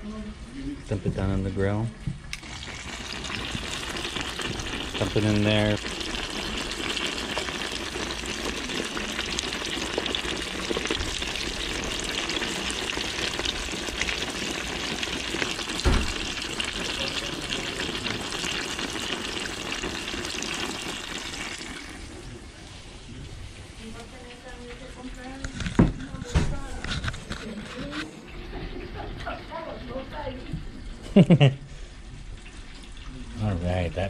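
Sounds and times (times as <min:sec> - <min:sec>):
oil sizzling in a deep-fryer: 0:00.0 - 0:34.0
knock: 0:15.8 - 0:16.1.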